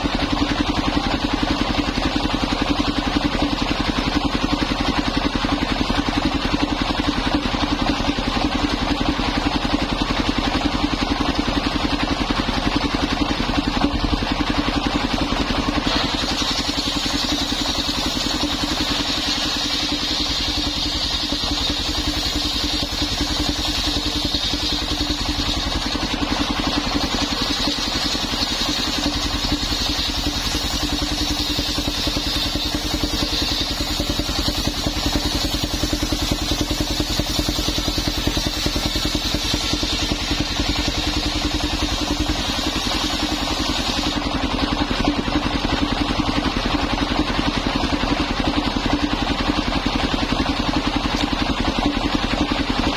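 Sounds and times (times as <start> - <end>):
sawmill engine running: 0.0 - 52.9
saw blade cutting wood: 13.7 - 44.3.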